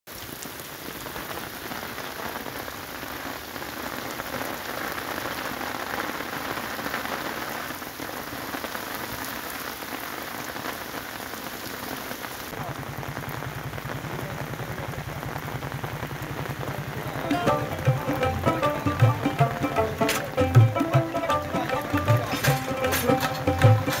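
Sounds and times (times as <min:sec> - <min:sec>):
heavy rain splashing in puddles: 0:00.1 - 0:24.0.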